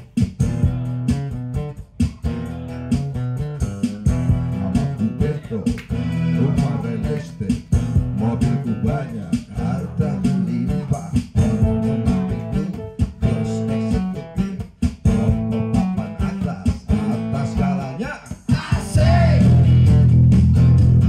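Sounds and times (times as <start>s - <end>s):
keyboard backing: 0.0s - 17.6s
acoustic guitar strumming: 0.0s - 18.1s
person singing: 4.4s - 14.7s, 15.7s - 19.7s.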